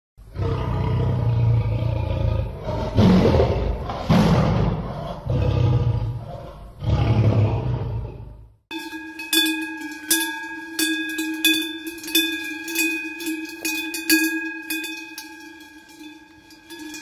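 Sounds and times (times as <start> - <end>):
lion roaring: 0.2 - 8.6.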